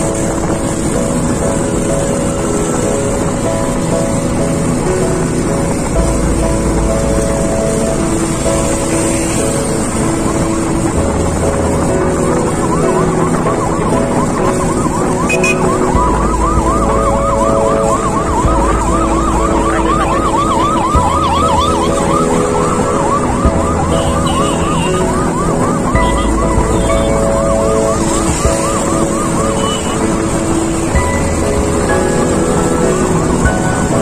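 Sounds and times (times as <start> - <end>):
background music: 0.0 - 34.0
ambulance siren yelping: 11.8 - 34.0.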